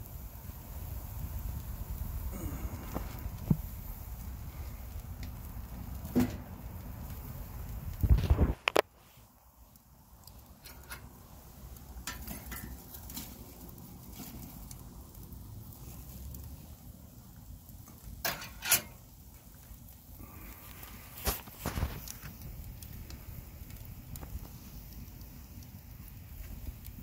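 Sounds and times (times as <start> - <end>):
wood fire crackling and popping: 0.0 - 27.0
logs clattering shifted with tongs: 10.5 - 11.2, 12.0 - 13.4, 18.2 - 19.0.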